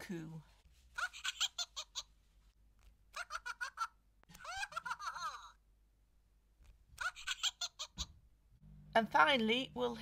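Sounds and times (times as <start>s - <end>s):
electronic toy giggling: 3.1s - 5.6s, 7.0s - 8.1s.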